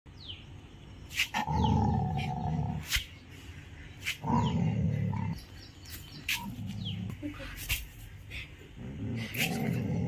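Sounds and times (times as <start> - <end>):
dog growling: 8.8 - 10.0.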